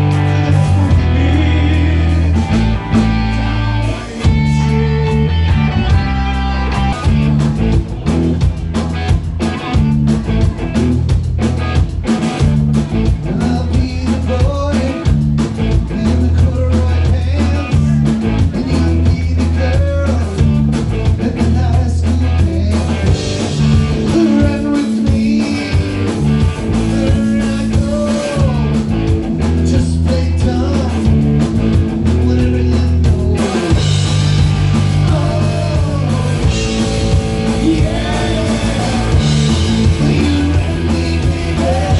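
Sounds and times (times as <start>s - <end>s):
bass guitar: 0.0s - 41.9s
drum kit: 0.0s - 41.9s
electric guitar: 0.0s - 41.9s
man singing into microphone: 0.3s - 2.5s, 3.2s - 5.4s, 13.2s - 15.1s, 15.8s - 20.5s, 21.2s - 26.1s, 26.7s - 28.8s, 29.6s - 31.1s, 32.1s - 33.8s, 34.8s - 41.9s.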